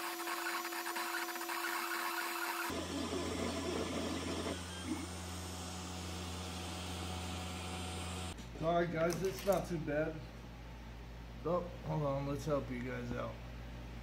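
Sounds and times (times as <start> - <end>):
three d printer motors whirring: 0.0 - 7.0.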